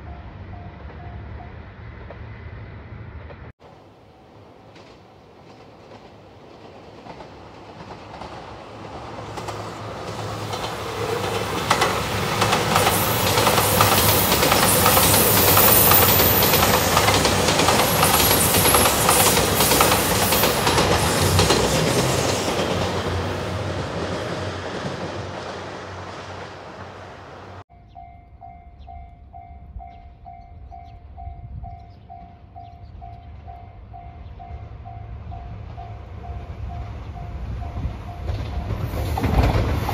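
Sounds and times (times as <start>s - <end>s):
diesel train passing: 0.0s - 39.9s
wheels clacking over rail joints: 3.3s - 27.6s, 35.5s - 39.9s.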